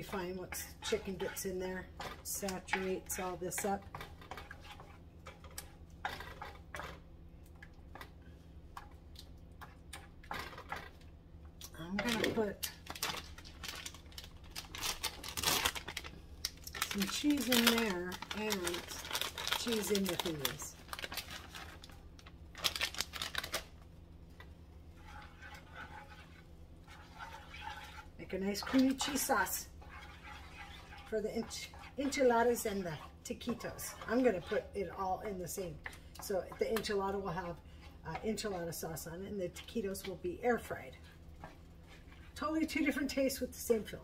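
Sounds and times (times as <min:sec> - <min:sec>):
wooden spoon scraping a pan: 0:00.0 - 0:07.1, 0:24.4 - 0:44.0
plastic bag crinkling: 0:12.0 - 0:23.8.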